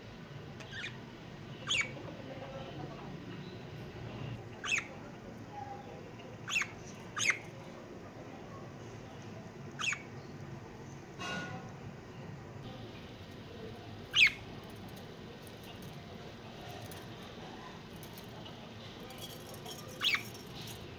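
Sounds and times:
budgerigars chirping: 0:00.6 - 0:01.0, 0:01.6 - 0:01.9, 0:04.6 - 0:04.9, 0:06.4 - 0:07.4, 0:09.8 - 0:10.1, 0:14.1 - 0:14.4.

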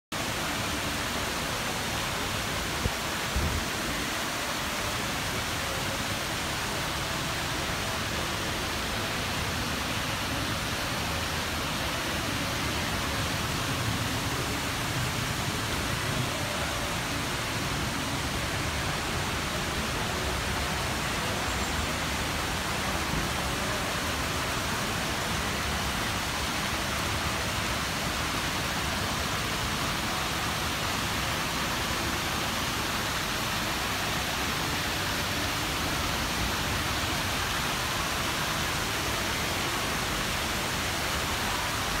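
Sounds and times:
fountain water splashing: 0:00.2 - 0:42.0.

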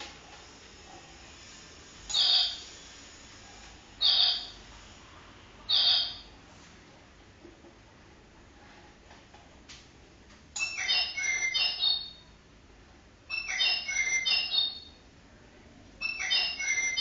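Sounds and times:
clock bird chirping: 0:02.1 - 0:02.6, 0:04.0 - 0:04.6, 0:05.7 - 0:06.3, 0:10.6 - 0:12.3, 0:13.3 - 0:15.0, 0:16.0 - 0:17.0.

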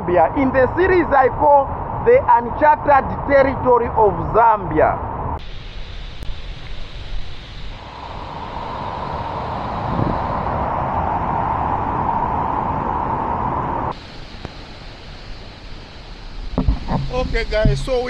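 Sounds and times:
wind rumbling on microphone: 0:00.0 - 0:18.0
steady rushing hiss: 0:05.4 - 0:18.0.

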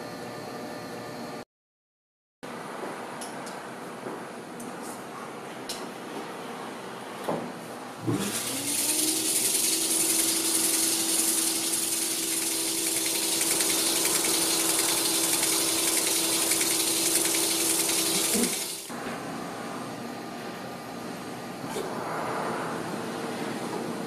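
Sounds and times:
grinding machine motor hum: 0:08.2 - 0:19.0
hiss of water and grinding: 0:08.3 - 0:18.9.

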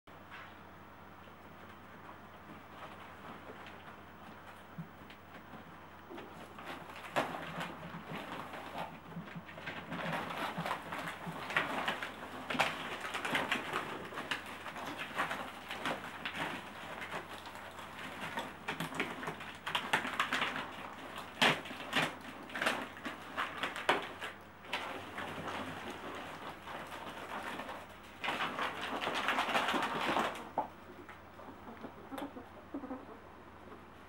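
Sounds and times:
ferret scratching in plastic tunnel: 0:06.2 - 0:30.6.

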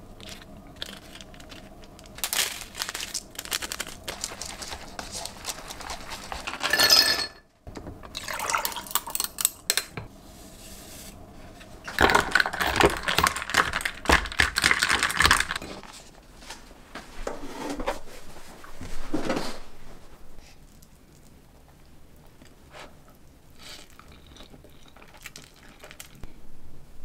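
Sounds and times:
chopsticks stirring noodles: 0:00.0 - 0:06.8
ice clinking against glass: 0:06.6 - 0:07.4.

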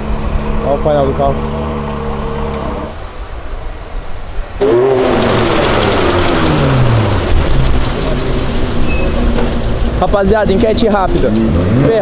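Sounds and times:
low engine rumble: 0:00.0 - 0:12.0
sports car engine passing: 0:04.6 - 0:12.0.

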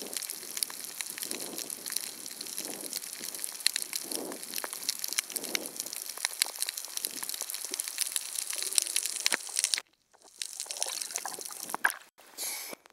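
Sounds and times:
underwater crackling clicks: 0:00.0 - 0:12.1.

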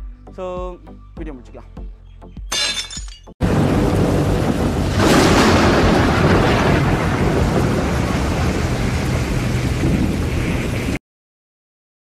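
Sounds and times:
tornado wind roaring: 0:03.4 - 0:11.0.

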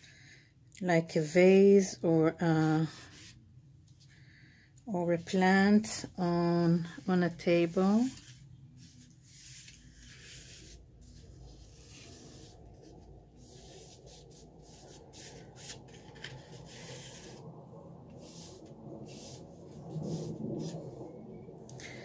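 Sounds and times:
drawing stick scratching on paper: 0:06.7 - 0:17.4, 0:18.1 - 0:20.8.

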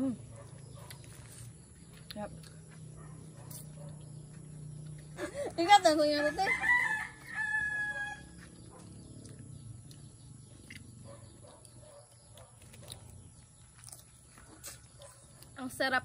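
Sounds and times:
chewing: 0:00.3 - 0:05.2, 0:08.4 - 0:15.6
rooster crowing: 0:06.1 - 0:08.6.

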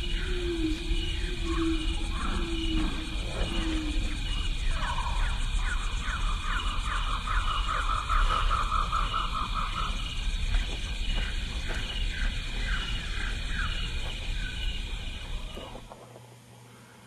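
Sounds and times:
insects trilling: 0:00.0 - 0:17.0.

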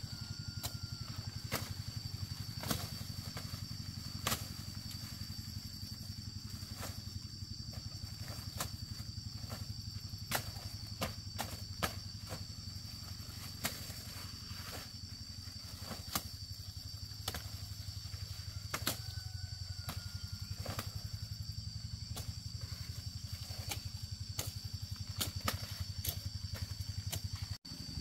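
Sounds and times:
small engine running: 0:21.6 - 0:28.0.

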